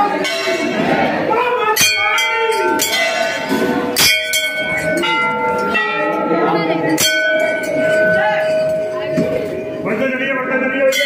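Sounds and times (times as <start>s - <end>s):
crowd chatter: 0.0s - 11.0s
temple bells ringing: 0.0s - 11.0s.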